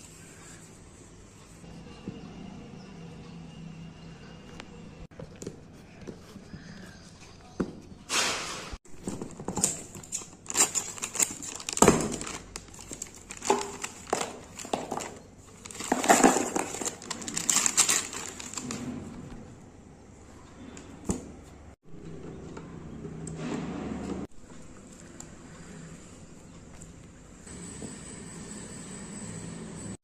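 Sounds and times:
cardboard rustling and tapping: 0:09.0 - 0:18.7
plastic packet crinkling: 0:09.1 - 0:18.8.

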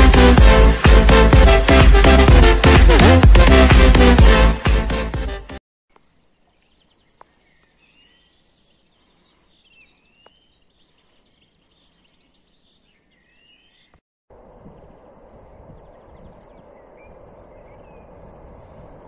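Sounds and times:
electronic dance music: 0:00.0 - 0:05.6
birds chirping and whistling: 0:06.1 - 0:14.0, 0:14.7 - 0:19.0.

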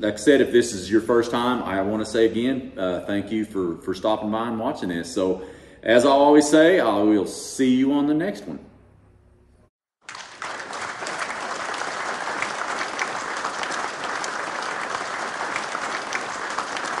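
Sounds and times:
crowd applause: 0:10.0 - 0:17.0.

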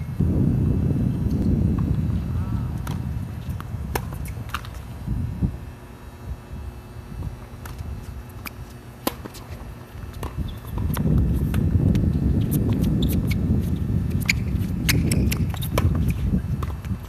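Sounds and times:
wind buffeting microphone: 0:00.0 - 0:08.3, 0:10.0 - 0:17.0
tennis ball pops off racket: 0:08.4 - 0:09.4.

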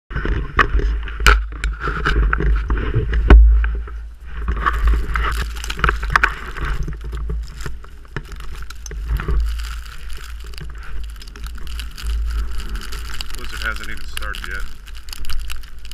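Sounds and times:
footsteps through deep snow: 0:03.8 - 0:15.9.

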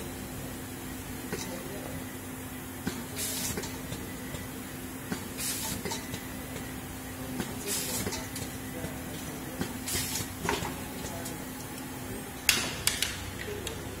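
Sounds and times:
compressed air hiss: 0:03.2 - 0:03.6, 0:05.4 - 0:05.9, 0:09.8 - 0:10.3.

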